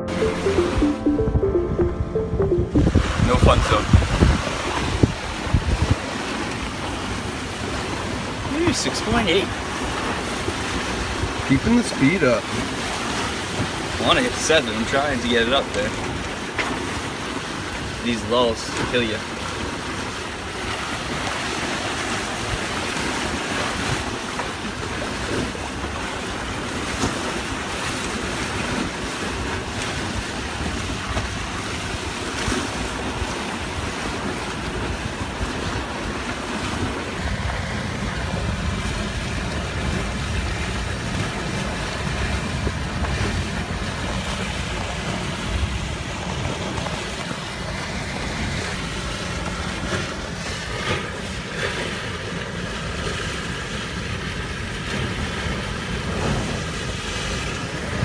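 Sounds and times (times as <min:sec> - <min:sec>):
water rushing past a boat: 0:00.0 - 0:58.0
wind buffeting the microphone: 0:02.9 - 0:06.1.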